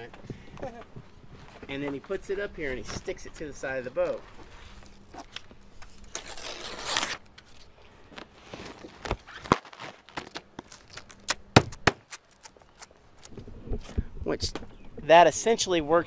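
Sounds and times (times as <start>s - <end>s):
vinyl film crinkling: 4.0s - 13.3s.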